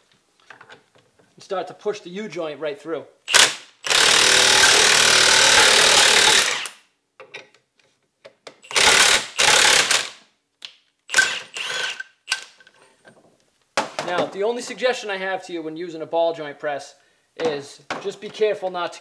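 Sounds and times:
impact wrench hammering: 0:03.3 - 0:06.7.

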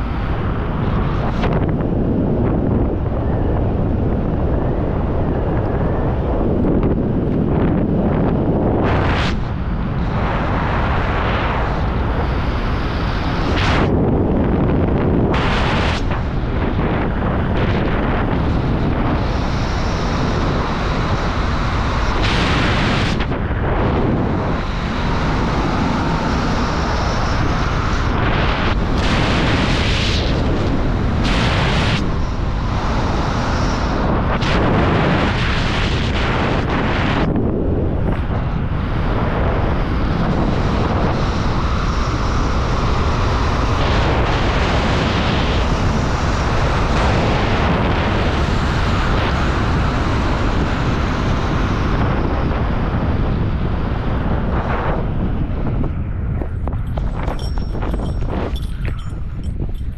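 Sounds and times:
wind rushing over microphone: 0:00.0 - 0:59.9.

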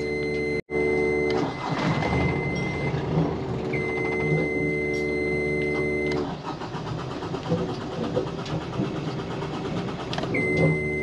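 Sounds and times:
electric fuel pump hum: 0:00.0 - 0:11.0.

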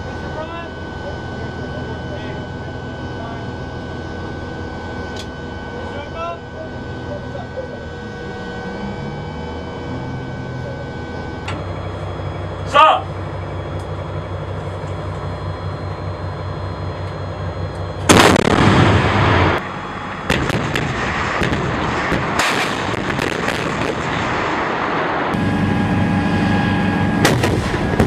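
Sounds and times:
low engine hum: 0:00.0 - 0:28.0
howitzer shot with rumbling tail: 0:17.9 - 0:28.0
sharp artillery shots: 0:18.1 - 0:19.6, 0:20.2 - 0:25.4, 0:27.0 - 0:28.0.

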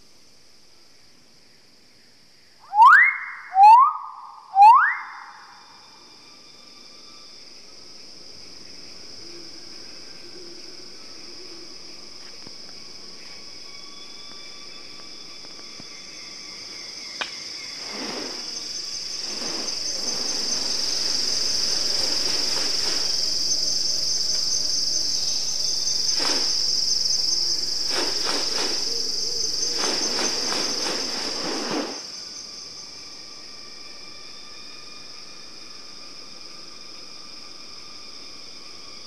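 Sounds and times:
high-pitched insect drone: 0:00.0 - 0:39.0
bird wings swishing: 0:17.7 - 0:23.4, 0:26.1 - 0:26.8, 0:27.8 - 0:32.1.

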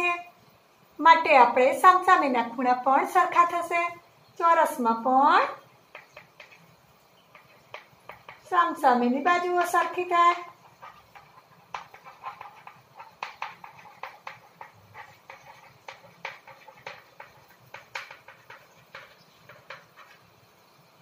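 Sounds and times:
chalk writing on blackboard: 0:05.9 - 0:08.5, 0:09.5 - 0:20.4.

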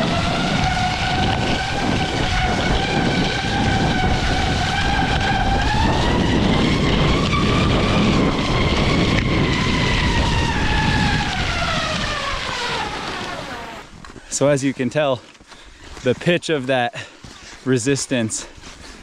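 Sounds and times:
ski buzzing on snow: 0:00.0 - 0:14.8
snow hiss: 0:12.6 - 0:13.9.

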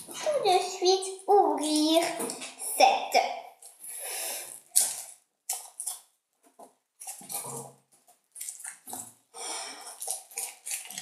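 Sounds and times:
chocolate egg wrapper rustling: 0:04.5 - 0:06.2.

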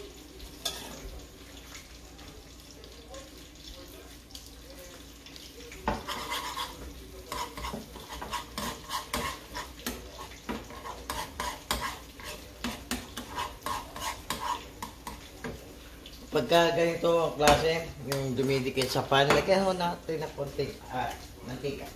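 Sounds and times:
metal spoon scraping a pan: 0:00.6 - 0:01.1, 0:05.8 - 0:15.3.

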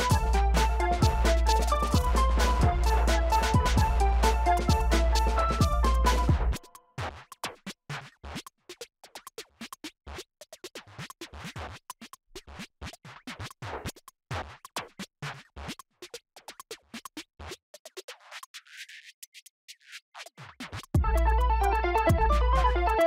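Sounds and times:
electronic music: 0:00.0 - 0:06.8, 0:21.0 - 0:23.0
sharp percussive beat: 0:00.0 - 0:07.1, 0:21.0 - 0:23.0.

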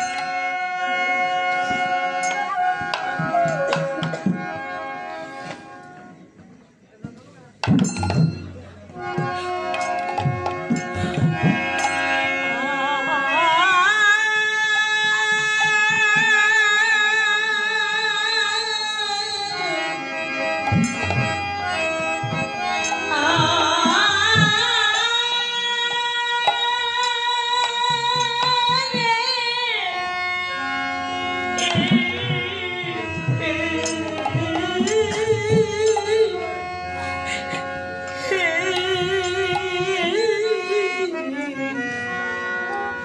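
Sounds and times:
harmonium: 0:00.0 - 0:43.0
bamboo flute: 0:00.1 - 0:06.2
woman singing: 0:12.4 - 0:19.8, 0:23.1 - 0:30.2, 0:31.6 - 0:36.7, 0:38.2 - 0:41.8.

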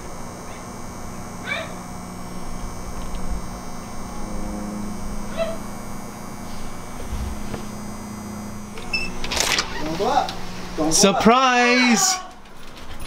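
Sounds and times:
steady low hum: 0:00.0 - 0:11.2
high-pitched animal cry: 0:05.3 - 0:05.7.

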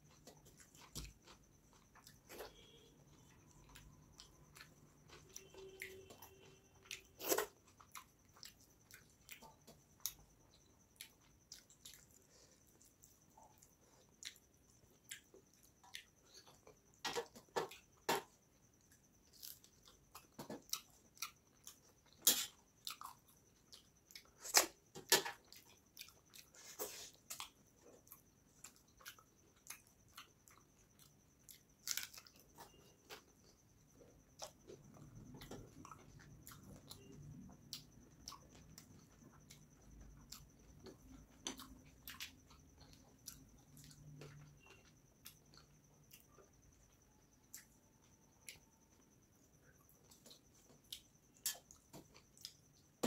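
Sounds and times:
faint high whine: 0:00.0 - 0:53.0
wet chewing and mouth smacks: 0:34.1 - 0:48.6.

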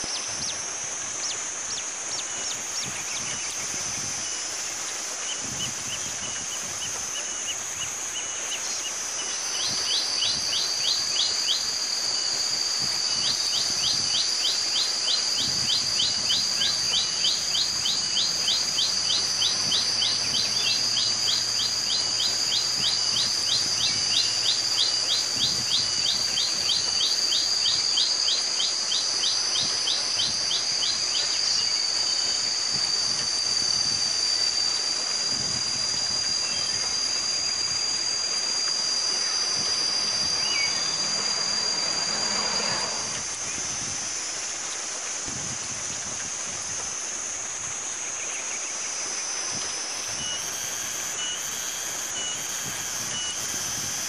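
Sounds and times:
high insect drone: 0:00.0 - 0:54.0
bird singing sharp repeated notes: 0:01.3 - 0:35.2, 0:35.8 - 0:43.6.

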